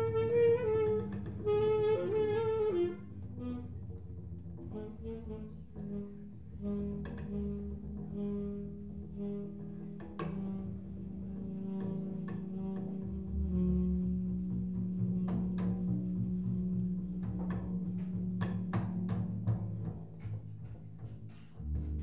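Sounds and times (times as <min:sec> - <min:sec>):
double bass: 0:00.0 - 0:22.0
tenor saxophone: 0:00.0 - 0:22.0.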